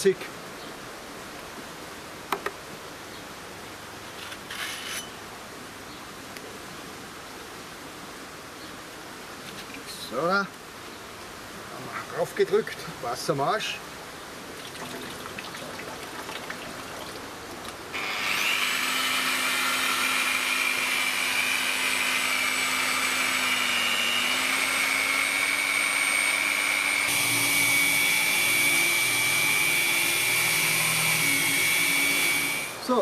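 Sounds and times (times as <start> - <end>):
angle grinder grinding stone: 4.3 - 5.1, 18.0 - 32.8
water running: 14.5 - 17.9.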